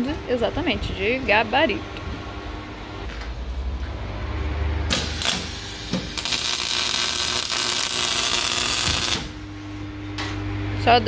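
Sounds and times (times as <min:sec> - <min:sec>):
welder arc crackling on steel: 0:04.9 - 0:09.6.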